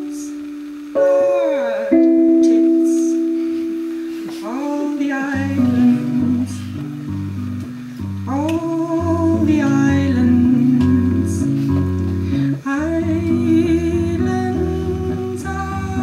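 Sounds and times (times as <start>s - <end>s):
keyboard chords: 0.0s - 16.0s
woman singing: 1.0s - 6.9s, 8.3s - 11.8s, 12.6s - 16.0s.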